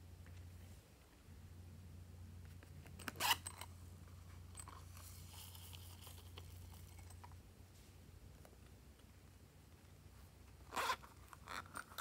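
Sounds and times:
zipper scrape: 3.0 - 3.7, 10.7 - 12.0.

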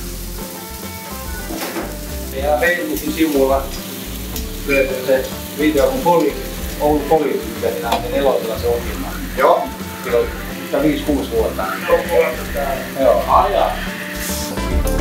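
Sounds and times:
patties sizzling on griddle: 0.0 - 15.0
person talking: 2.4 - 3.8, 4.7 - 13.9.

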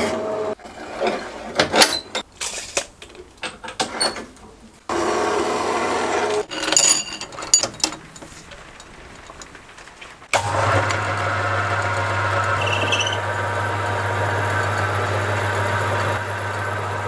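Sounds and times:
metallic clicks and knocks: 6.5 - 10.3
bandsaw running: 10.3 - 17.0.

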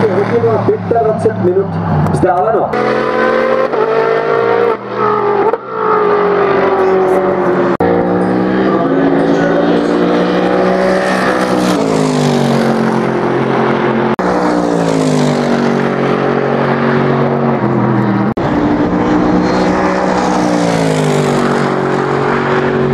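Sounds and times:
race car engine passing by: 0.0 - 22.9.

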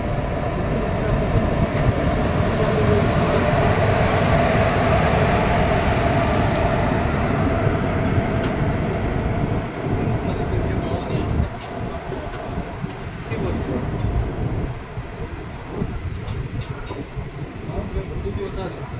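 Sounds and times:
train wheels rumbling on rail: 0.0 - 18.9.

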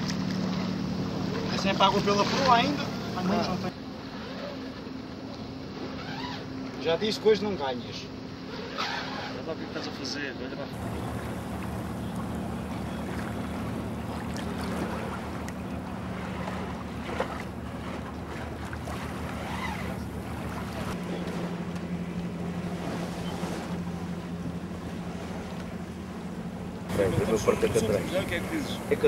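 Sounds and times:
water rushing: 0.0 - 3.7, 10.7 - 29.0
low steady hum: 10.7 - 29.0.

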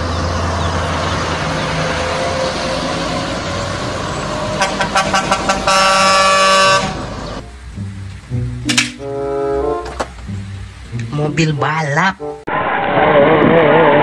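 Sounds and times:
heavy trucks running: 0.0 - 14.0
truck air horn toots: 4.5 - 7.2.

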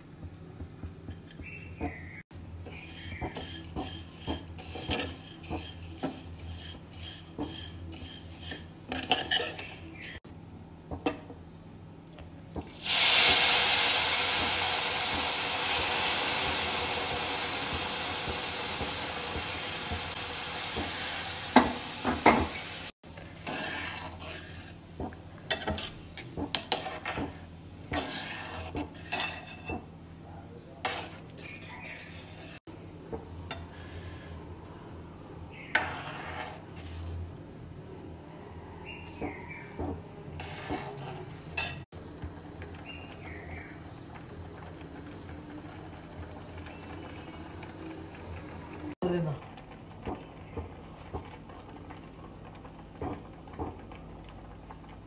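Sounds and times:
spatula scraping metal pan: 2.6 - 10.2, 23.3 - 24.9, 25.5 - 29.8, 30.8 - 32.7, 35.6 - 37.3, 40.4 - 41.8
milk hissing in hot pan: 12.8 - 22.9.

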